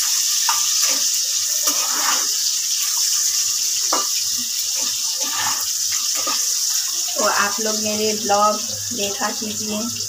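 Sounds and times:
spatula stirring in pan: 0:00.0 - 0:07.5
potatoes sizzling in oil: 0:00.0 - 0:10.0.

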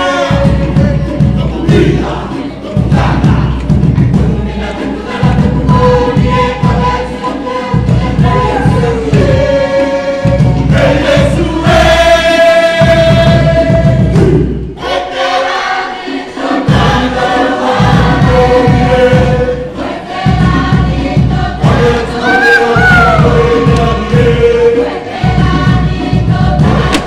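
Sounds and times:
voices singing in chorus: 0:00.0 - 0:27.0
dense low dance beat: 0:02.8 - 0:04.4.

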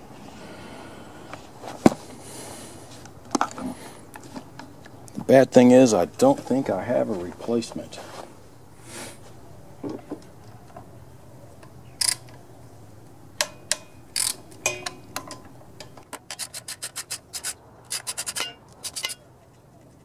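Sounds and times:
ratchet wrench clicking: 0:12.0 - 0:12.3, 0:13.4 - 0:14.4.

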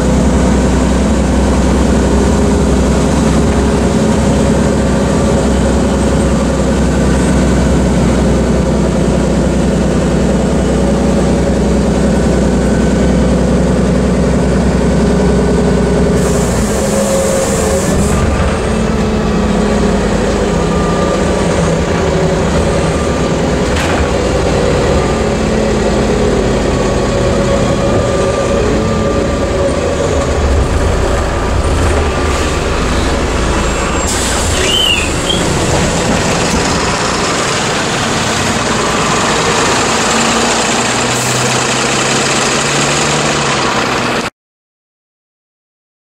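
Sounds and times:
bus engine and road noise: 0:00.0 - 0:44.3
brief squeal: 0:32.9 - 0:35.7.

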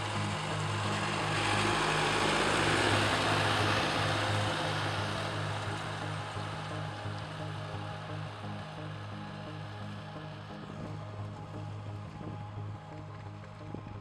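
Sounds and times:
tractor engine and tillage noise: 0:00.0 - 0:08.8
background music with low notes: 0:00.0 - 0:14.0.

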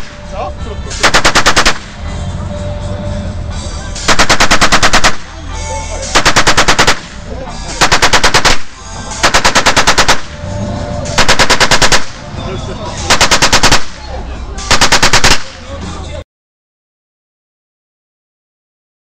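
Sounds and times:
machine gun bursts: 0:01.0 - 0:01.8, 0:04.1 - 0:05.3, 0:06.1 - 0:07.1, 0:07.8 - 0:10.3, 0:11.2 - 0:12.2, 0:13.1 - 0:13.9, 0:14.7 - 0:15.5.

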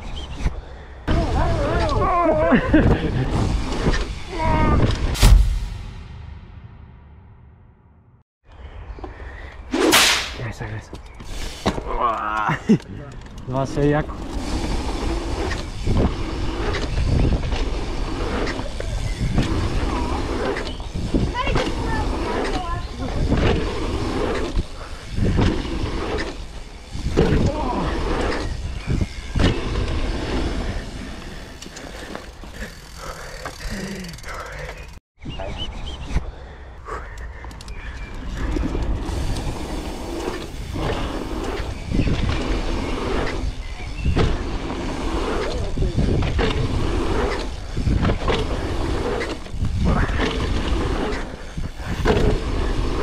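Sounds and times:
bike tyre noise on dirt: 0:00.0 - 0:06.5, 0:08.7 - 0:35.0, 0:37.0 - 0:53.0
wind buffeting microphone: 0:40.5 - 0:48.8.

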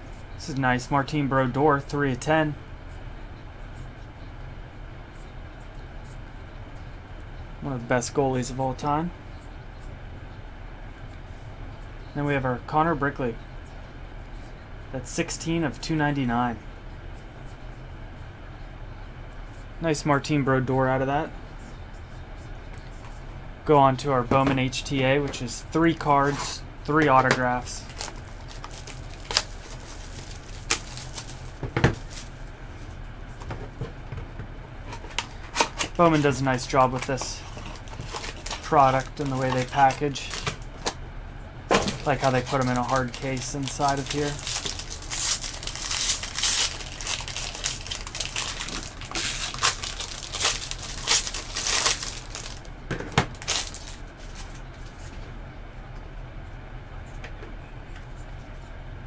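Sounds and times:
plastic wrapper crinkling and tearing: 0:27.6 - 0:32.4, 0:35.0 - 0:41.0, 0:41.8 - 0:52.7, 0:53.3 - 0:54.6.

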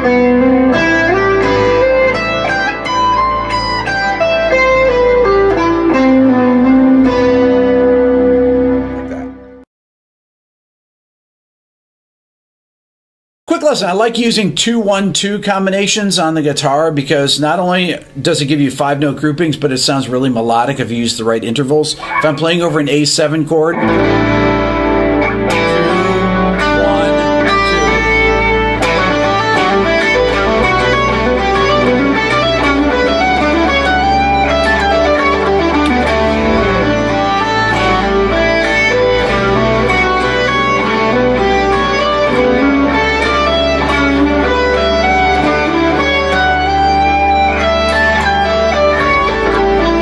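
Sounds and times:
electric guitar melodic lines: 0:00.0 - 0:09.6, 0:21.9 - 0:50.0
low bass tone: 0:23.7 - 0:50.0.

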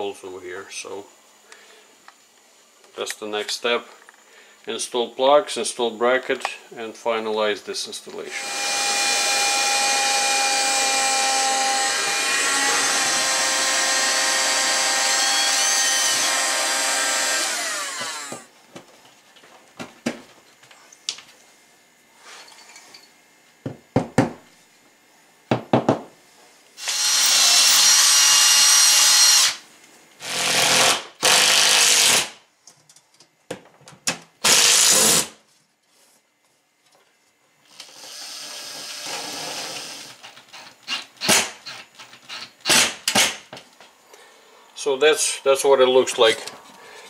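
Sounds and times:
power drill running: 0:08.3 - 0:18.5, 0:26.8 - 0:29.6, 0:30.2 - 0:32.3, 0:34.4 - 0:35.3, 0:37.7 - 0:41.0.

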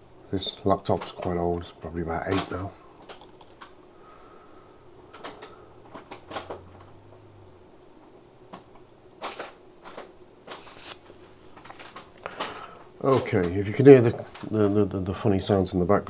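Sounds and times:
bag rustling and crinkling: 0:10.5 - 0:12.5.

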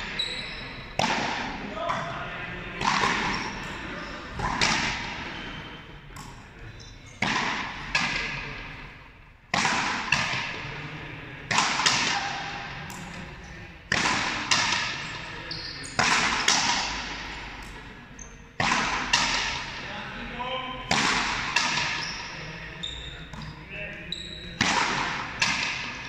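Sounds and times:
ball hitting wall with echo: 0:00.0 - 0:05.4, 0:06.1 - 0:06.5, 0:07.2 - 0:08.9, 0:09.5 - 0:10.8, 0:11.4 - 0:13.3, 0:13.9 - 0:18.0, 0:18.6 - 0:19.9, 0:20.8 - 0:22.5, 0:23.1 - 0:23.7, 0:24.4 - 0:26.0
rubber ball struck with rackets: 0:01.0 - 0:02.0, 0:02.8 - 0:03.6, 0:04.4 - 0:05.1, 0:07.2 - 0:08.4, 0:09.5 - 0:10.6, 0:11.5 - 0:13.1, 0:13.9 - 0:15.0, 0:16.0 - 0:17.8, 0:18.6 - 0:19.6, 0:20.9 - 0:22.0, 0:24.6 - 0:26.0.

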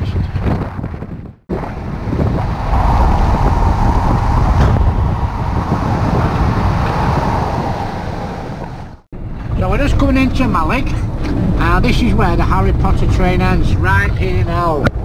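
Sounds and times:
wind noise: 0:00.0 - 0:15.0
vehicle engine: 0:01.5 - 0:09.6.

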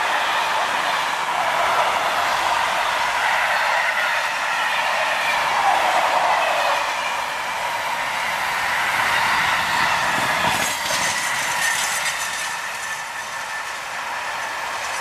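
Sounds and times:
train wheels rushing on rails: 0:00.0 - 0:15.0
high ringing from wheels: 0:06.9 - 0:15.0
wheel clacks over rail joints: 0:09.2 - 0:15.0.

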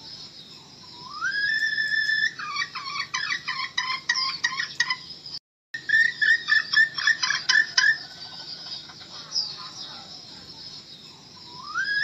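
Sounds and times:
hen calling and clucking: 0:01.0 - 0:05.0, 0:05.8 - 0:10.3.

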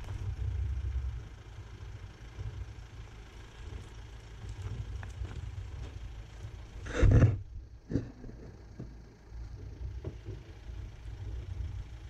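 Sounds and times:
engine rumbling at low revs: 0:00.0 - 0:12.0.

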